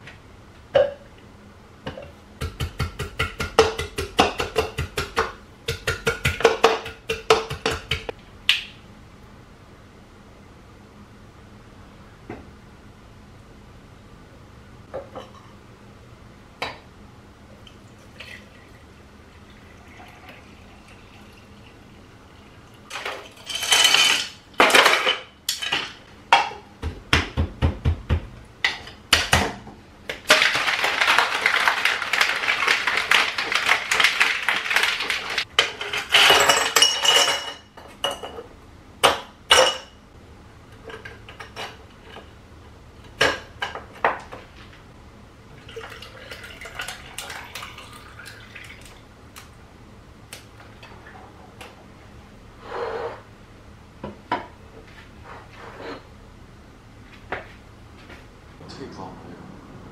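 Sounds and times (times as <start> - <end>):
glassware and utensils clinking: 22.9 - 25.9, 35.6 - 38.4.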